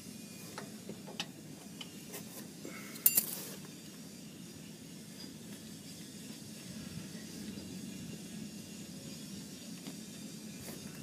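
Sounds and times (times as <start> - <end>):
hand tools clinking on metal: 3.0 - 3.4.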